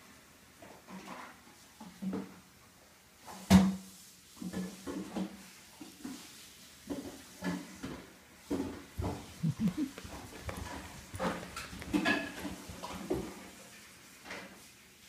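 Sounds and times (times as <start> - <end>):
cat paws thudding on carpet: 9.0 - 13.3.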